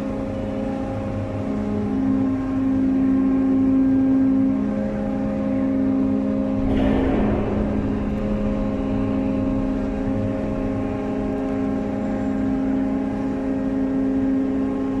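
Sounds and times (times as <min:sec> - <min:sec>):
crane machinery droning: 0:00.0 - 0:15.0
low rumble: 0:06.3 - 0:15.0.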